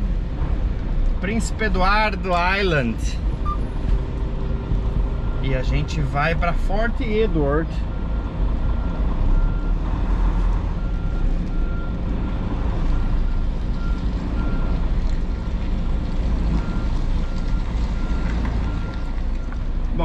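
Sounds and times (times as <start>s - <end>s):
diesel truck engine rumbling: 0.0s - 20.0s
reversing alarm beeping: 3.4s - 3.8s.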